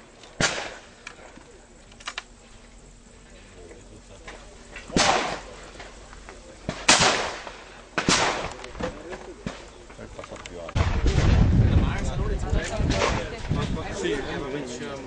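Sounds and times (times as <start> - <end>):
shotgun shots with echo: 0.4 - 0.9, 4.9 - 5.5, 6.7 - 8.6.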